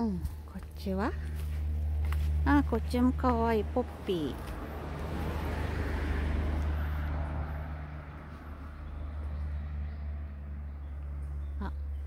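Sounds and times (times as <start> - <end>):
steady low rumble: 0.0 - 5.7
car passing: 1.1 - 12.0.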